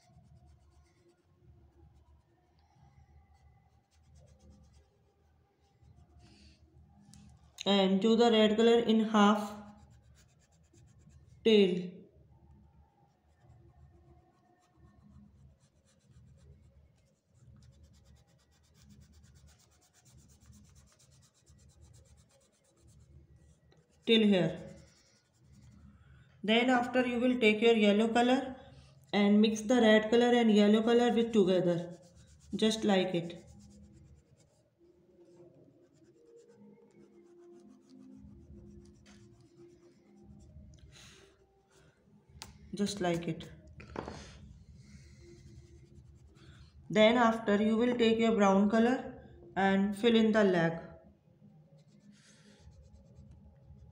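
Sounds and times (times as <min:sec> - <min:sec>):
pastel rubbing on paper: 0:00.0 - 0:02.3, 0:03.4 - 0:06.6, 0:09.4 - 0:11.4, 0:13.3 - 0:26.0, 0:30.8 - 0:41.7, 0:42.4 - 0:46.5, 0:51.8 - 0:53.9.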